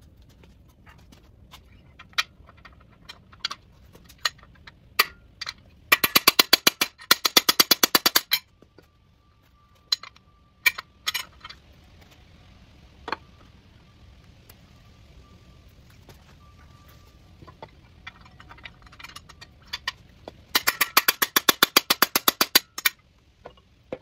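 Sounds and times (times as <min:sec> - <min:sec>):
metal tool clinking: 0:09.8 - 0:11.6, 0:16.4 - 0:23.6.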